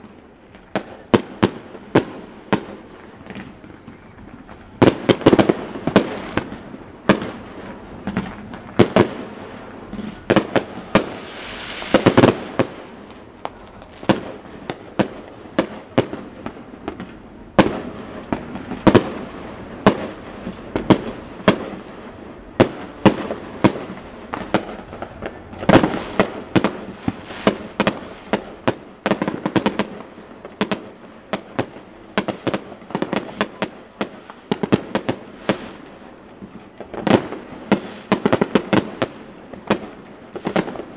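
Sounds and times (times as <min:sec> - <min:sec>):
fireworks bangs and booms: 0:00.0 - 0:40.9.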